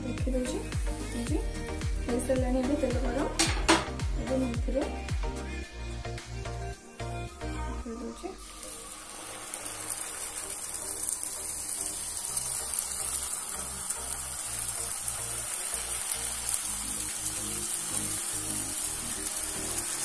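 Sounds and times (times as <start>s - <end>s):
dough deep-frying in oil: 8.4s - 20.0s.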